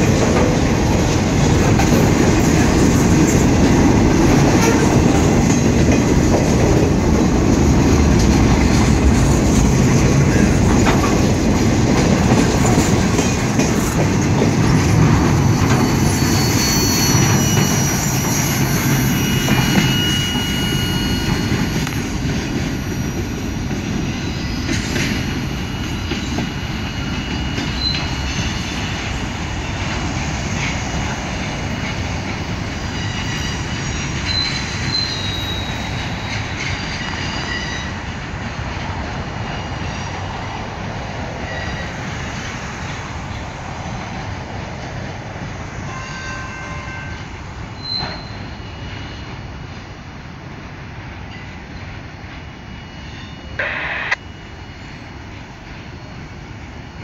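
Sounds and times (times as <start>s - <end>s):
freight train wheels rumbling: 0.0s - 57.0s
high-pitched wheel squeals: 15.6s - 22.2s, 24.2s - 28.9s, 32.9s - 38.0s, 45.9s - 49.4s.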